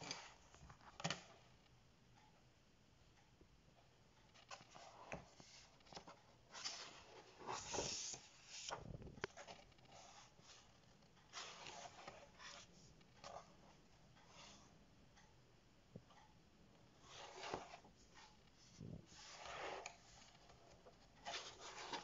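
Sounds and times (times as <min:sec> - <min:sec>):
paper pages rustling: 0:04.3 - 0:13.5, 0:17.0 - 0:22.0.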